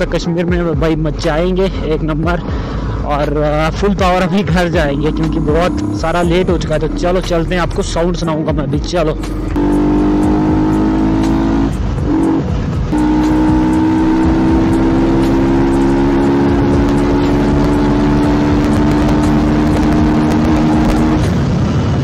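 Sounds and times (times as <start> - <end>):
motorcycle engine at high revs: 4.6 - 6.7, 9.5 - 21.4.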